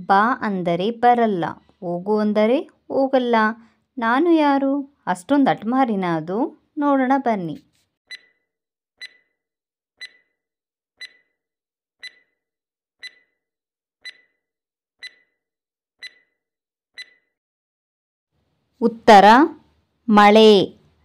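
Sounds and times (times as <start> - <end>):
clock-like ticks: 8.1 - 8.3, 9.0 - 9.3, 10.0 - 10.3, 11.0 - 11.3, 12.0 - 12.4, 13.0 - 13.4, 14.0 - 14.4, 15.0 - 15.4, 16.0 - 16.4, 17.0 - 17.3.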